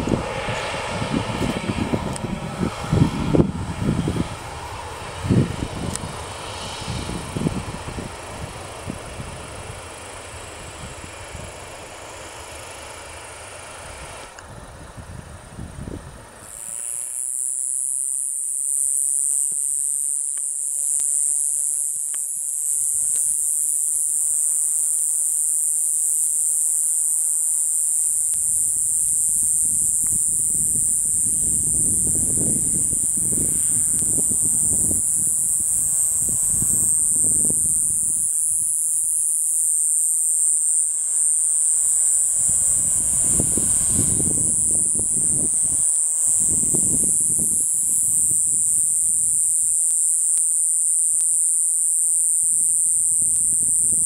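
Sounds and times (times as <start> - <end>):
low rumble: 0.0 - 12.0
wind buffeting microphone: 0.0 - 12.0, 13.8 - 16.5, 28.4 - 39.2, 41.5 - 49.5
night insects shrilling: 0.0 - 14.4, 16.4 - 54.0
jet engines idling: 0.0 - 16.8.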